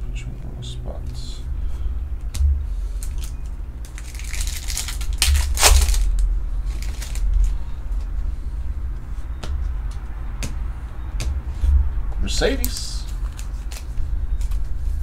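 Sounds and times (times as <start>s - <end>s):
foil wrapper crinkling: 3.0s - 7.6s
light crackles of pack handled: 3.0s - 7.6s.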